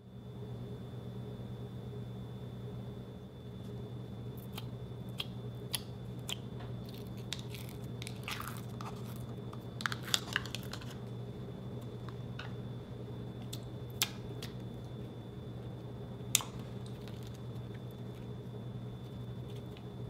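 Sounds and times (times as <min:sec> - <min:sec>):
steady low hum: 0:00.0 - 0:20.0
slime crackling and popping: 0:06.8 - 0:11.0.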